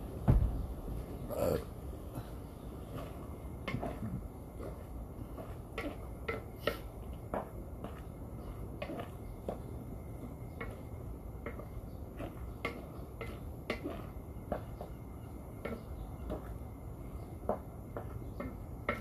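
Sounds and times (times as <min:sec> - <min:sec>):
low background hum: 0:00.0 - 0:19.0
hand mixing meat in metal basin: 0:04.6 - 0:15.0.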